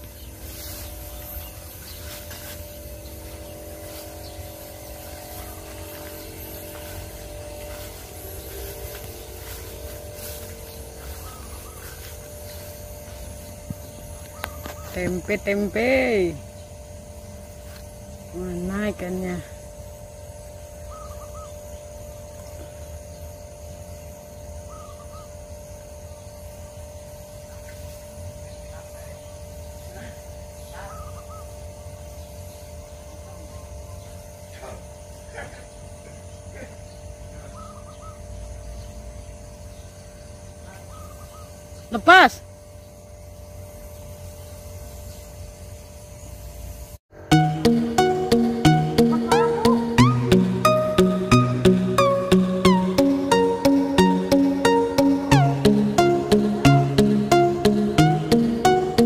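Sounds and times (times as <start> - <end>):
distant motor hum: 0.0 - 59.0
warbling bird call: 20.8 - 21.7, 49.0 - 51.4.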